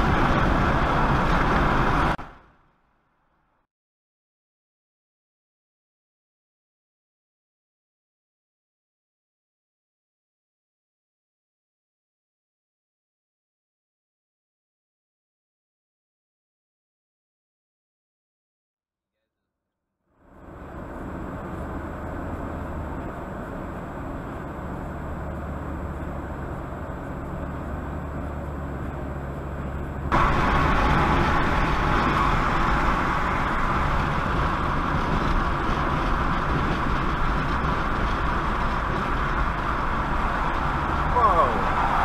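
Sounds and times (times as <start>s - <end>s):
car road and engine noise: 0.0s - 3.7s, 20.1s - 42.0s.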